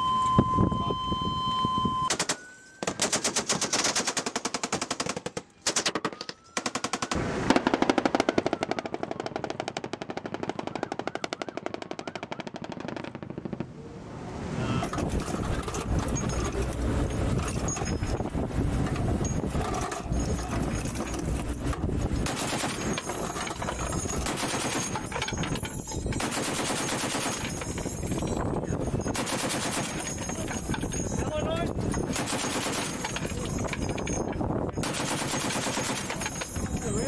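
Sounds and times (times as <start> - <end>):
high beep: 0.0 - 2.8
machine gun firing bursts: 2.1 - 13.5, 22.2 - 25.2, 26.2 - 27.8, 29.1 - 30.3, 32.0 - 33.4, 34.8 - 36.6.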